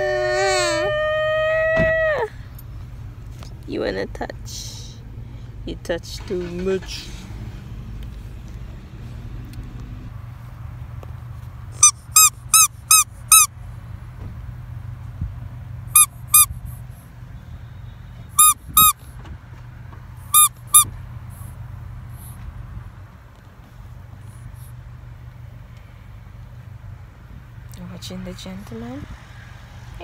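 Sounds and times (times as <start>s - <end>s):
car hum: 0.0s - 29.2s
rubber squeeze toy squeaking: 11.8s - 13.5s, 16.0s - 16.6s, 18.4s - 19.0s, 20.2s - 20.9s.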